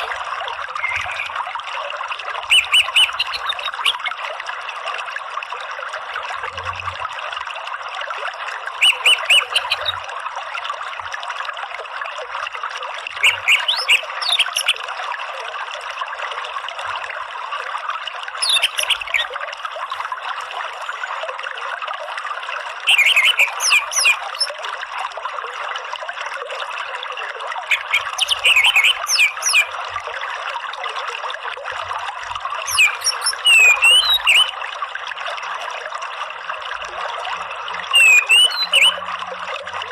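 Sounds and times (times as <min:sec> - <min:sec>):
stream water running: 0:00.0 - 0:39.9
bird twittering: 0:00.7 - 0:01.4, 0:02.5 - 0:04.0, 0:08.8 - 0:10.0, 0:13.2 - 0:14.8, 0:18.4 - 0:19.3, 0:22.9 - 0:24.6, 0:27.7 - 0:29.7, 0:32.7 - 0:34.6, 0:37.9 - 0:39.0.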